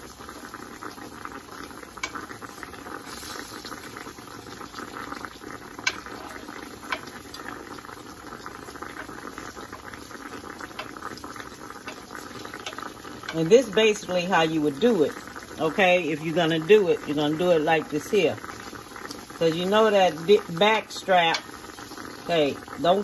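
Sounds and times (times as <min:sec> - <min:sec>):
meat sizzling in grease: 0:00.0 - 0:23.0
tongs clicking on pan: 0:02.0 - 0:02.3, 0:05.8 - 0:07.4, 0:10.7 - 0:11.2, 0:11.8 - 0:13.4, 0:21.3 - 0:21.6.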